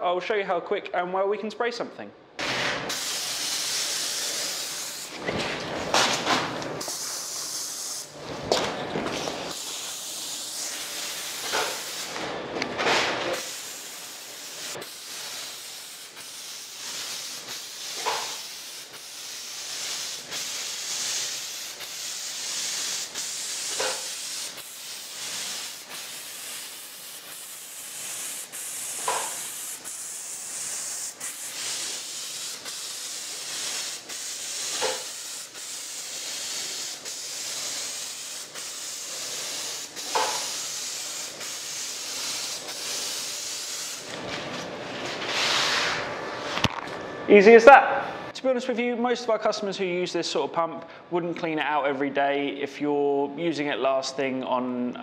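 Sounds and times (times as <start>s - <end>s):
spray gun hissing: 2.9s - 5.2s, 6.8s - 8.2s, 9.5s - 12.2s, 13.3s - 44.1s.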